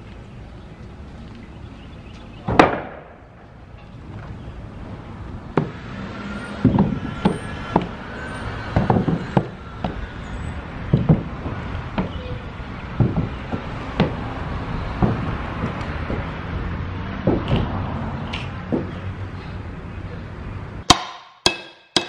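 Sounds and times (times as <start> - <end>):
knocks and thuds on wooden steps: 6.6 - 8.0, 8.7 - 10.0, 10.9 - 12.2, 12.9 - 14.3, 14.9 - 16.3, 17.2 - 17.7, 18.6 - 19.0
boards crashing onto wooden deck: 8.7 - 10.0, 10.9 - 12.2, 12.9 - 14.2, 14.9 - 16.3.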